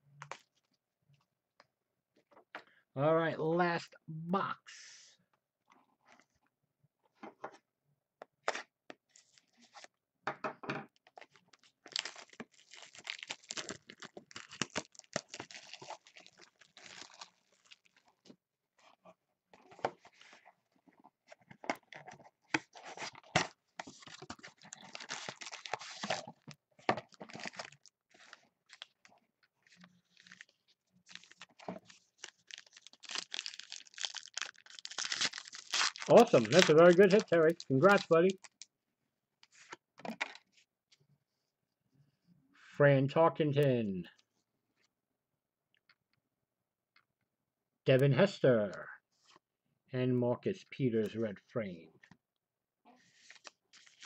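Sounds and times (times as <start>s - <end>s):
wrappers torn and crinkled: 11.2s - 18.1s, 22.9s - 26.4s, 27.0s - 29.0s, 29.8s - 38.6s, 53.2s - 54.0s
cards being handled: 34.2s - 38.5s.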